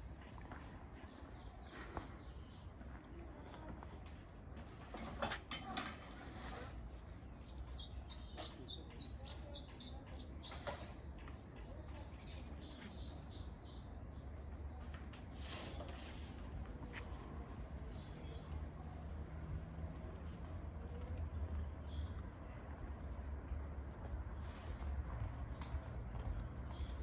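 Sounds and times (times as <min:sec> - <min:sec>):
songbird chirping: 0:00.0 - 0:04.3, 0:07.1 - 0:27.0
low outdoor rumble: 0:15.8 - 0:27.0.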